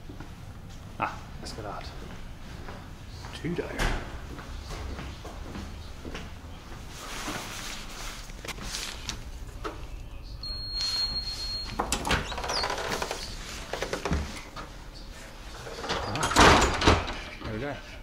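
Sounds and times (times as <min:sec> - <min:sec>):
card reader long high beep: 0:10.4 - 0:12.2.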